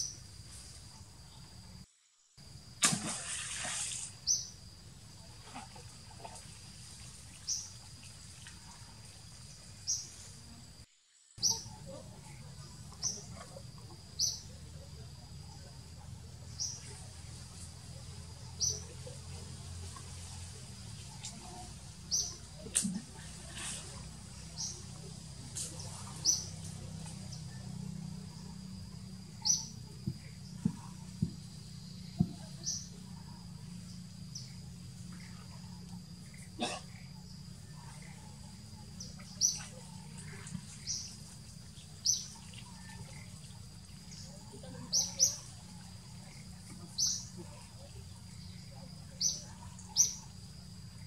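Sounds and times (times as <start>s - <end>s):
small bird chirping: 4.2s - 4.6s, 7.4s - 7.8s, 11.4s - 14.6s, 18.4s - 19.2s, 21.1s - 22.6s, 24.0s - 27.7s, 29.0s - 50.4s.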